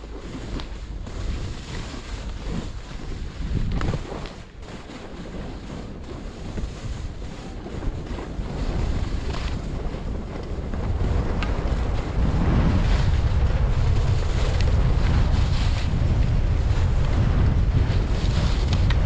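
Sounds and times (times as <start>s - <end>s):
wind buffeting microphone: 0.0s - 19.0s
skis hissing on snow: 13.8s - 15.9s.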